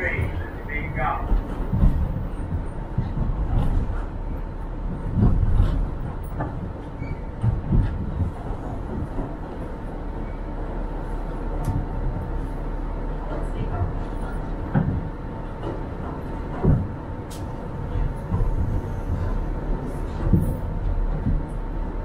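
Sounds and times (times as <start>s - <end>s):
subway train rumble on track: 0.0s - 22.0s.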